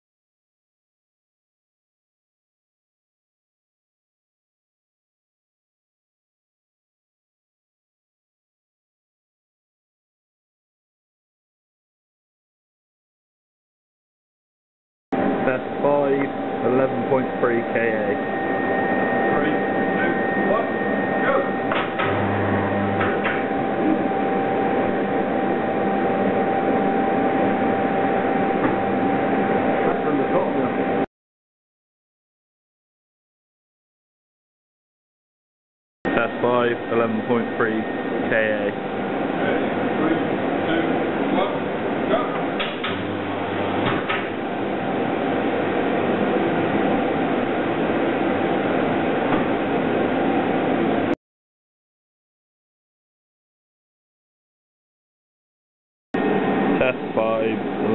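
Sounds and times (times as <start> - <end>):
high-pitched tone: 15.2 - 31.0
deep electrical hum: 15.2 - 31.1, 36.1 - 51.2, 56.2 - 57.9
steady test room noise: 15.2 - 31.1, 36.1 - 44.3, 56.2 - 57.9.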